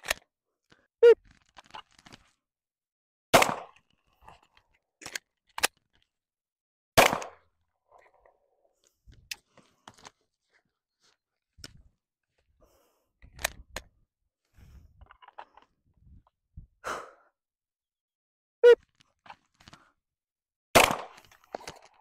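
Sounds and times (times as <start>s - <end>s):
handgun shots: 3.4s - 3.7s, 7.0s - 7.4s, 20.8s - 21.2s.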